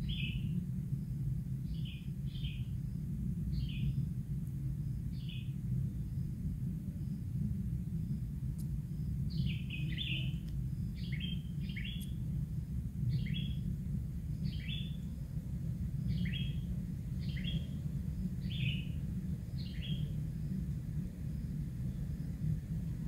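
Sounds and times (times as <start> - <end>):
steady low rumble: 0.0 - 23.0
birds high chirping calls: 9.3 - 12.2, 13.1 - 13.6, 14.4 - 15.0, 16.1 - 16.6, 17.2 - 17.8, 18.4 - 19.0, 19.6 - 20.1.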